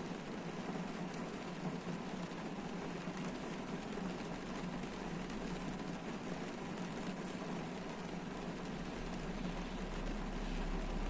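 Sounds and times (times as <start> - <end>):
rain pattering on car roof: 0.0 - 11.0.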